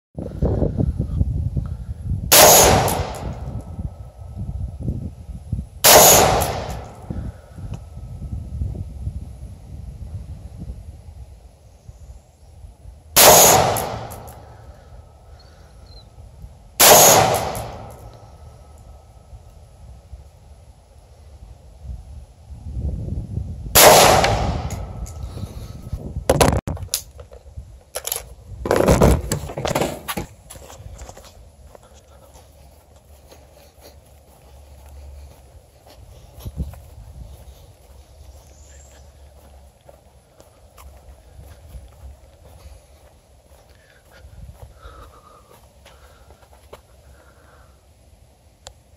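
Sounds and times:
wind rumble on microphone: 0.2s - 47.3s
rifle shots: 2.3s - 3.4s, 5.8s - 7.0s, 13.2s - 14.4s, 16.8s - 18.1s, 23.8s - 24.9s.

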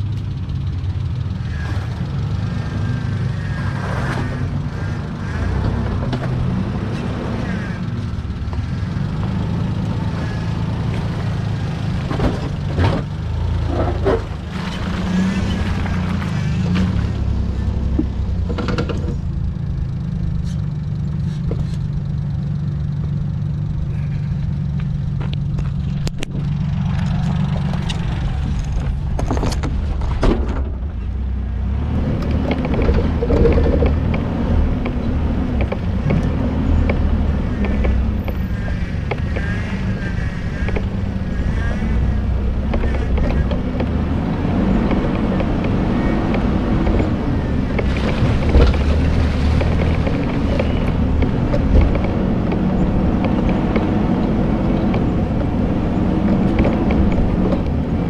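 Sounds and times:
suv engine revving: 31.1s - 58.0s.

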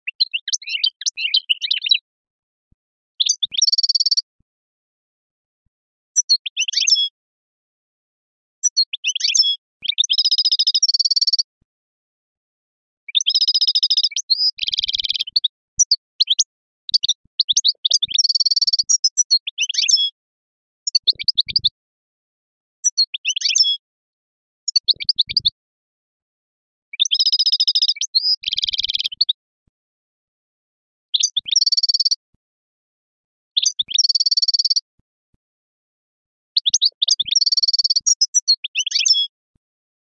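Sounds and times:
songbird chirping and trilling: 0.0s - 2.1s, 3.2s - 4.4s, 6.2s - 7.2s, 8.6s - 11.5s, 13.1s - 20.2s, 20.9s - 21.8s, 22.8s - 23.8s, 24.6s - 25.6s, 26.9s - 29.4s, 31.2s - 32.2s, 33.6s - 34.9s, 36.6s - 39.4s.

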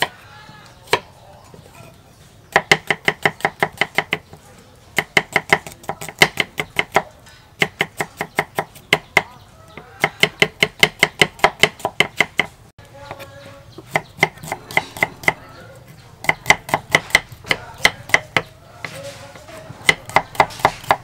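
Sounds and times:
knife chopping on wooden board: 2.5s - 4.3s, 5.0s - 13.2s, 13.8s - 15.4s, 16.2s - 19.0s, 19.6s - 21.0s.

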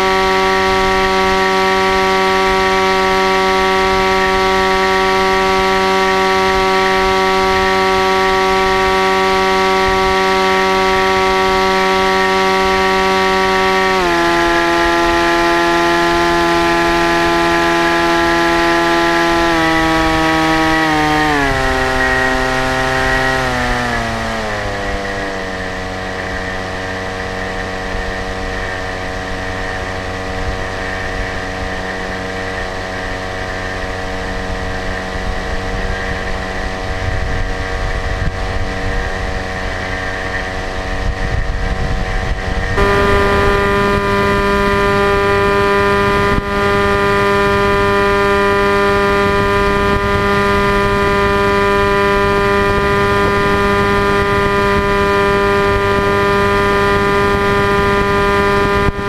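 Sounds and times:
model plane motor whining: 0.0s - 59.0s.

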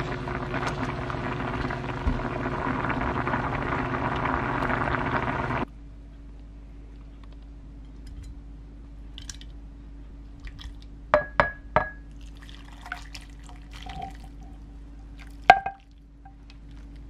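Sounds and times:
liquid splashing: 12.1s - 16.0s.

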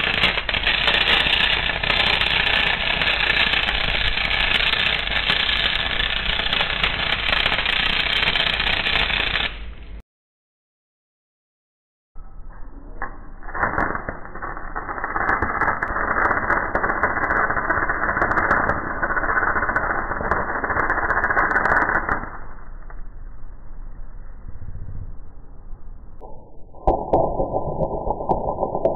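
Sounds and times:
arc welding crackling hiss: 0.0s - 9.8s, 13.6s - 22.4s.

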